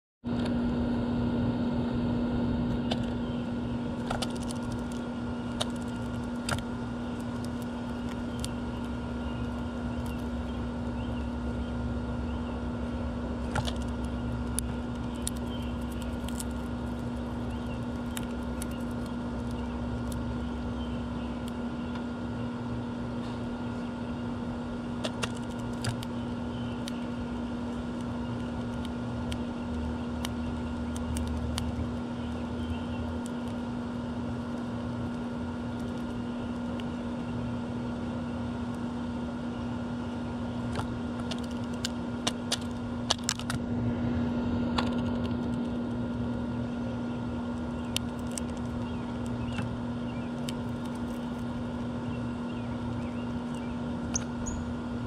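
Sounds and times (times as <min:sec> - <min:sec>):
steady mechanical hum: 0:00.2 - 0:55.0
bird cracking seeds clicks: 0:04.0 - 0:10.9, 0:13.4 - 0:22.1, 0:25.0 - 0:32.4, 0:34.5 - 0:37.0, 0:40.7 - 0:43.6, 0:44.8 - 0:46.4, 0:47.5 - 0:49.7, 0:50.3 - 0:51.9.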